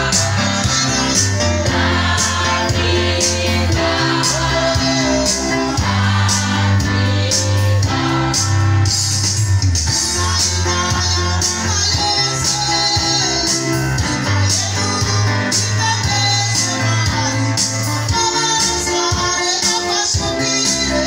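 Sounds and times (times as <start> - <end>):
women singing together: 0.0 - 8.6
heavy bass line: 0.0 - 16.4
guitar: 0.0 - 21.0
keyboard: 0.0 - 21.0.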